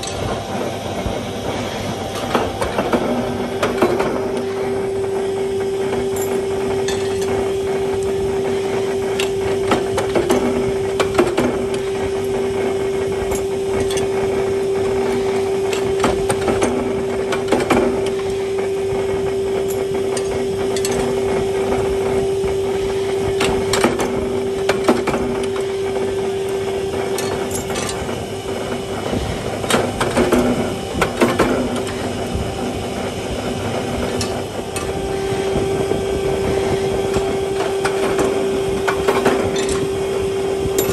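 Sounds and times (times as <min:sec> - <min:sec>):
machine hum: 0:00.0 - 0:40.9
sharp metal knocks: 0:37.1 - 0:39.9.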